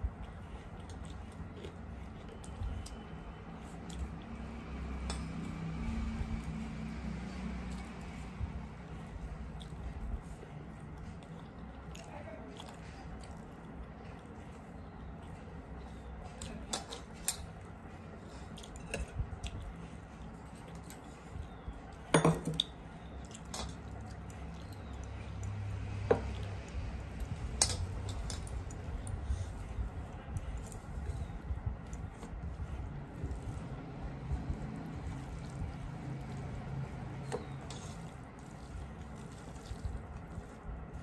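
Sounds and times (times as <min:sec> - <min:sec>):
fingers mixing rice on steel plate: 0:23.2 - 0:41.0.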